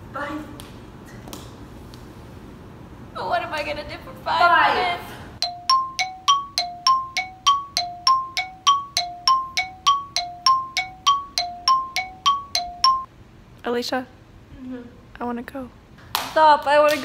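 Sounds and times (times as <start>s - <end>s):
two-tone chime: 5.4s - 13.1s.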